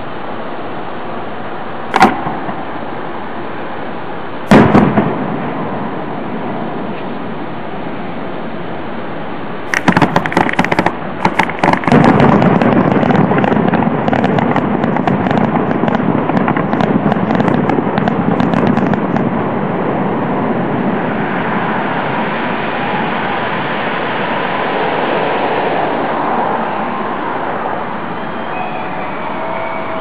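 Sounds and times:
steady rushing noise: 0.0 - 30.0
fireworks bursting: 1.9 - 3.2, 4.4 - 7.4, 9.7 - 26.0
fireworks crackling: 1.9 - 3.6, 4.4 - 7.4, 9.7 - 26.2.

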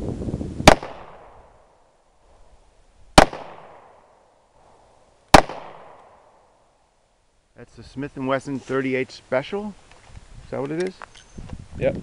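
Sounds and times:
revolver gunshots echoing: 0.7 - 1.6, 3.2 - 4.2, 5.3 - 6.4.

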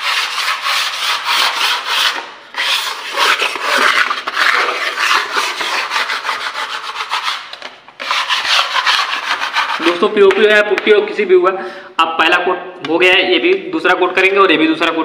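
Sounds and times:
putty blade scraping wall: 0.0 - 10.1.

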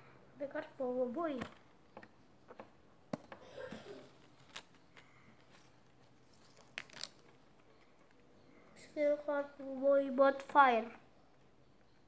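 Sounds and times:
cards rustling: 4.0 - 8.2.

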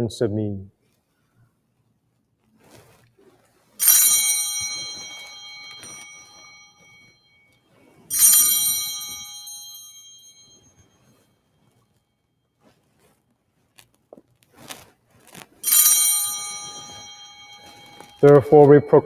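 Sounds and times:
altar bell ringing: 3.8 - 11.4, 15.6 - 19.0.

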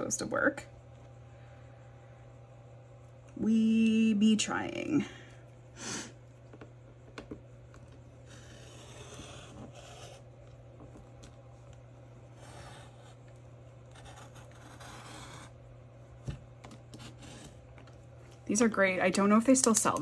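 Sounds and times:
low steady hum: 0.0 - 20.0
paper rubbing and scraping: 8.3 - 10.2, 12.3 - 13.3, 13.9 - 15.6.

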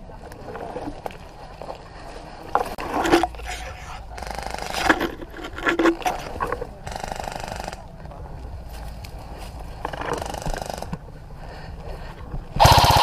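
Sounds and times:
footsteps in undergrowth: 0.8 - 12.6
leaves and branches rustling: 7.9 - 12.8.

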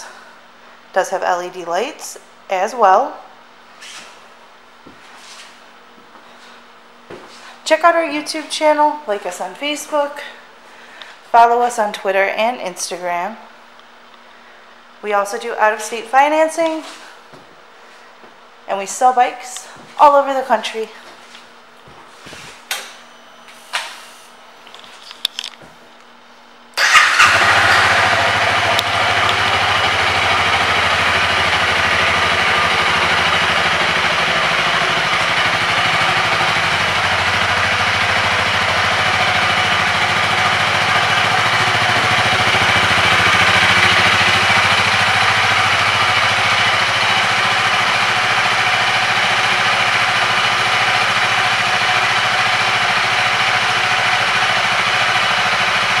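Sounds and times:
motorcycle engine idling: 26.8 - 56.0.

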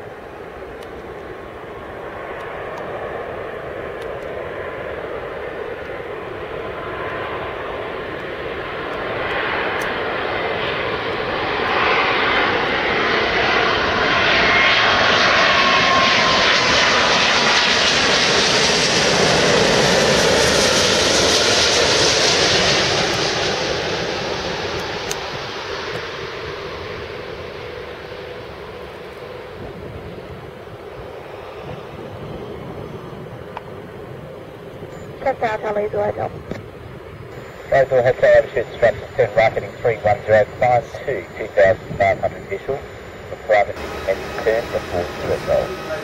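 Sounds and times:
jet airliner engine roar: 0.0 - 46.0
thin engine whine: 37.3 - 46.0.

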